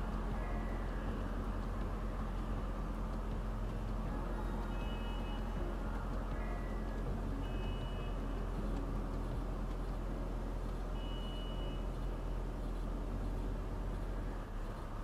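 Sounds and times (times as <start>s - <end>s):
low rumble of idling cars: 0.0s - 15.0s
high electronic beep: 11.0s - 11.9s.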